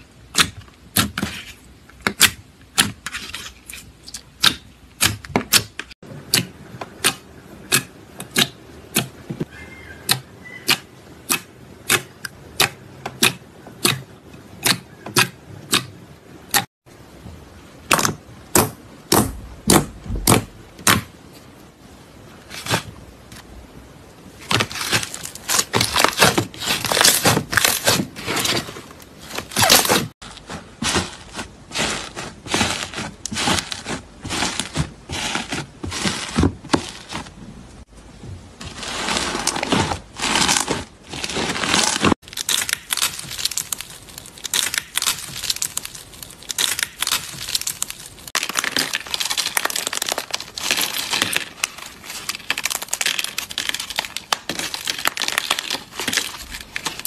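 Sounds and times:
slime clicking and crackling: 0:38.8 - 0:57.0
hardened slime shell cracking: 0:41.7 - 0:57.0.

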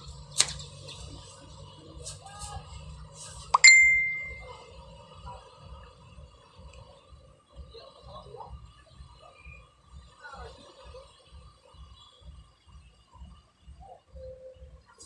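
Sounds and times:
faint steady hum: 0:00.0 - 0:15.0
bright ding: 0:03.6 - 0:04.5.

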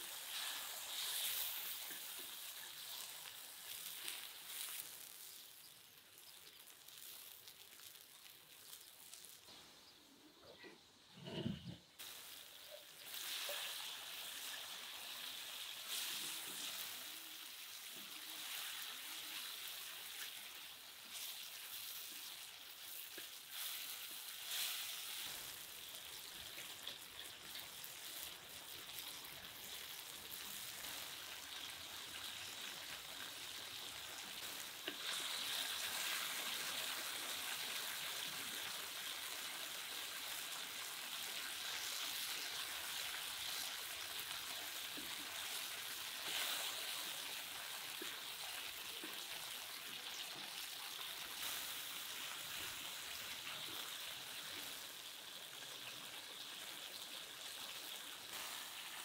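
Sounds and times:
food sizzling in hot oil: 0:00.0 - 0:10.1, 0:11.9 - 0:59.0.

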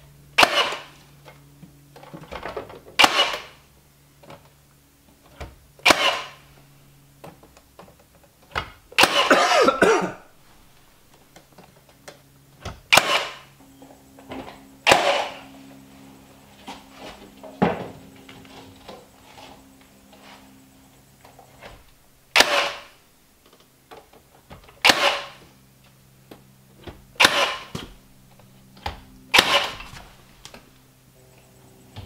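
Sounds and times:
faint low hum: 0:00.0 - 0:32.0
nail gun firing: 0:00.4 - 0:00.9, 0:03.0 - 0:03.6, 0:05.8 - 0:06.4, 0:09.0 - 0:09.5, 0:12.8 - 0:13.5, 0:14.8 - 0:15.4, 0:22.3 - 0:23.0, 0:24.8 - 0:25.4, 0:27.2 - 0:27.9, 0:29.3 - 0:29.9.

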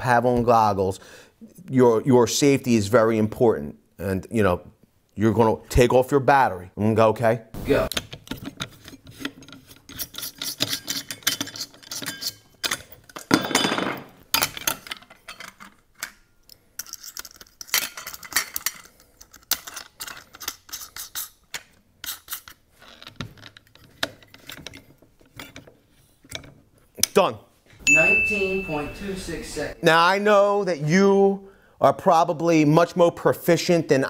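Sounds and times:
metal clinks and knocks: 0:08.0 - 0:21.2.

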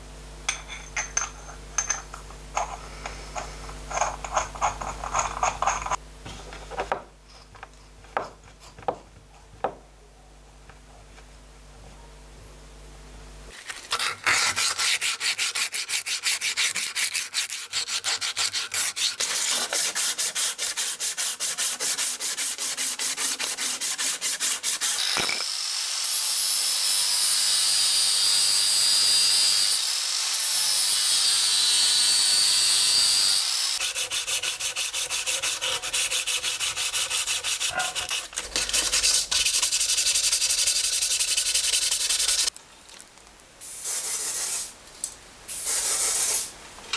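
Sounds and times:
angle grinder sanding metal: 0:13.7 - 0:42.5
hand rubbing on metal: 0:33.8 - 0:42.5.

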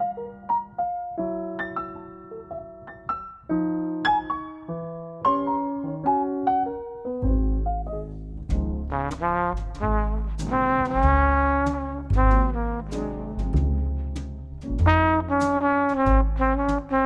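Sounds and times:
piano notes: 0:00.0 - 0:17.0
deep bass: 0:07.2 - 0:17.0
drum hits: 0:08.5 - 0:17.0
brass section: 0:08.9 - 0:14.2, 0:14.8 - 0:17.0.

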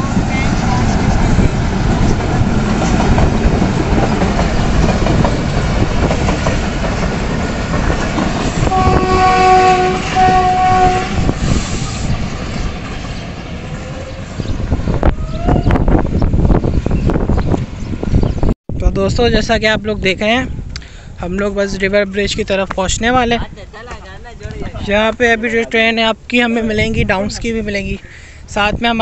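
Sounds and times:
freight train rumbling past: 0:00.0 - 0:18.6
locomotive horn: 0:08.6 - 0:11.4.

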